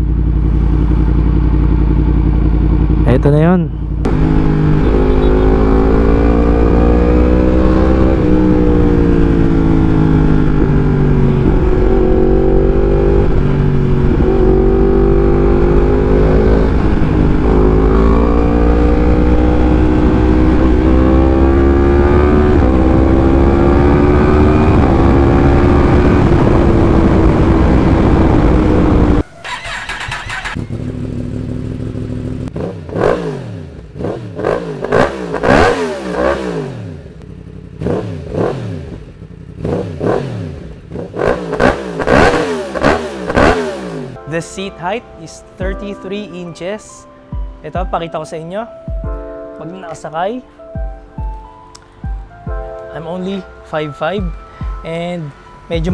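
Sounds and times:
motorcycle engine accelerating: 0.0 - 44.2
motorcycle engine revving: 0.0 - 44.2.

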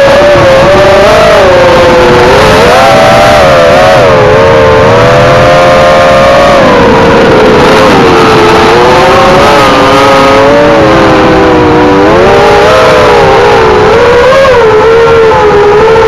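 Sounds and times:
rush of air noise: 0.0 - 14.2
quadcopter motors whining: 0.0 - 16.0.

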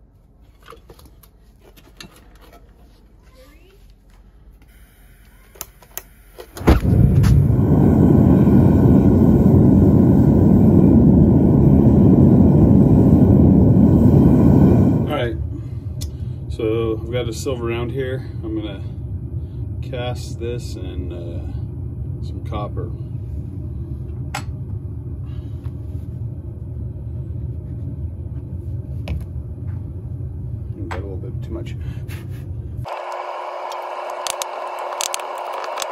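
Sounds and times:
gas burner roaring: 4.7 - 35.9
steady low rumble: 6.7 - 32.9
lighter clicking: 33.1 - 35.9.

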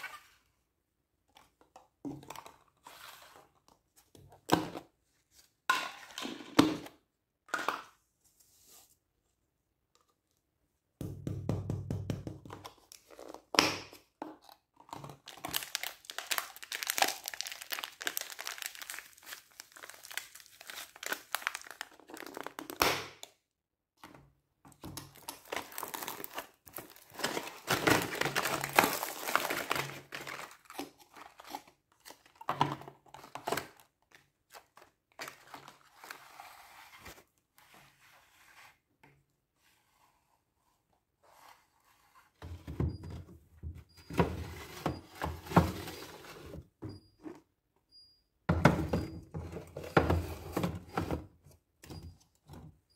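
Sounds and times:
plastic cups crinkling: 14.2 - 22.8, 24.9 - 36.0.

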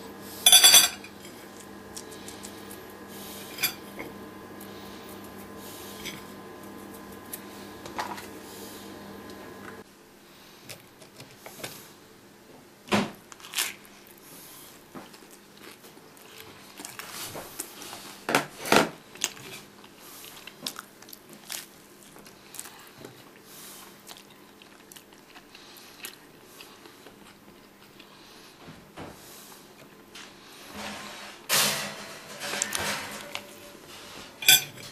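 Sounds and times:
toast crunching: 0.1 - 9.4.

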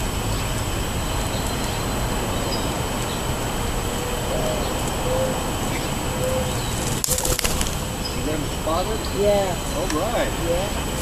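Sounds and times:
dove cooing: 3.8 - 11.0.

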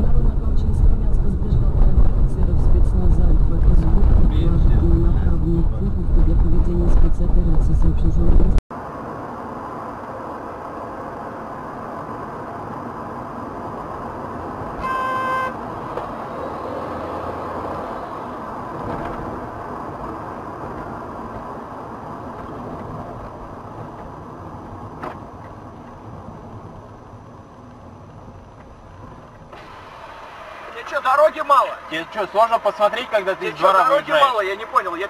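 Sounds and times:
car road and engine noise: 0.0 - 35.0
car horn blast: 14.8 - 15.7.

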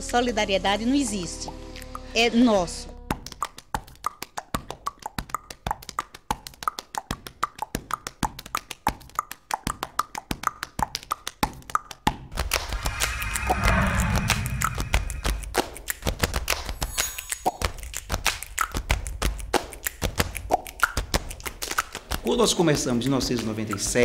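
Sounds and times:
percussive clicks and pops: 3.1 - 12.4, 17.4 - 22.3
low rumble: 12.4 - 15.5.

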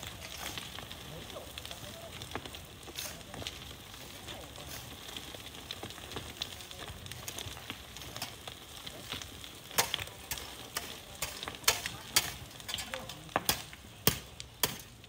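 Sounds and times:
sand and stones scraping: 0.0 - 13.7.

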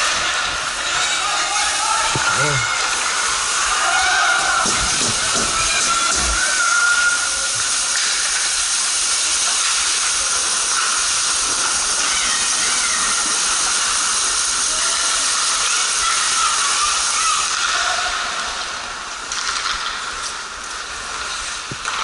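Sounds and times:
faint voices: 0.0 - 8.3
ice rink hiss: 0.0 - 22.0.

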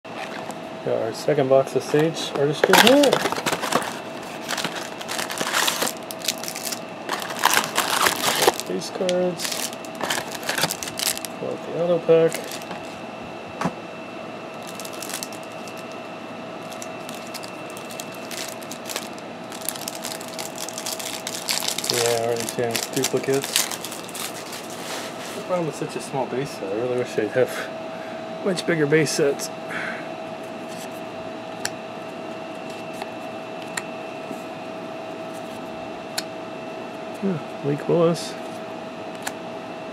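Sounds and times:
steady background hum: 0.0 - 39.9
card pack rustling and crinkling: 1.9 - 11.4, 12.2 - 12.9, 14.6 - 16.0, 16.6 - 25.2.

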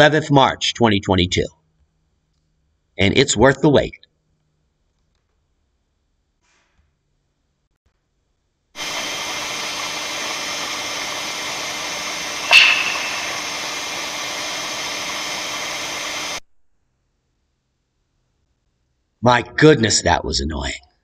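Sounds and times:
recording hiss: 8.8 - 16.4
sharp snap: 12.4 - 13.8.

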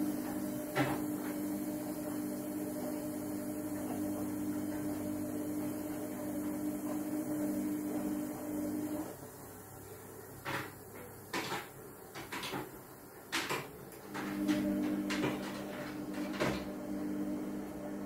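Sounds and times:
low electrical appliance hum: 0.0 - 18.0.

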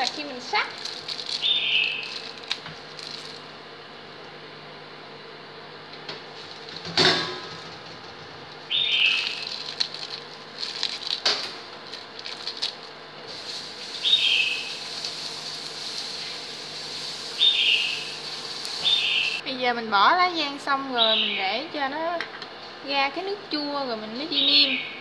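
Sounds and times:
hands crumpling leaves: 0.0 - 3.4, 8.9 - 19.4
broth simmering with light hiss: 8.5 - 19.4.

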